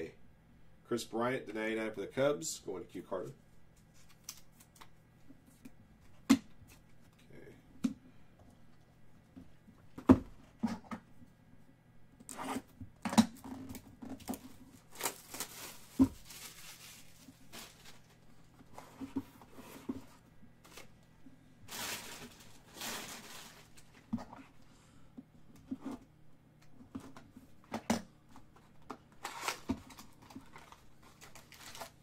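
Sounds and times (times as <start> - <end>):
plastic wrap tearing and crinkling: 13.7 - 18.2, 21.7 - 24.1, 29.2 - 32.0.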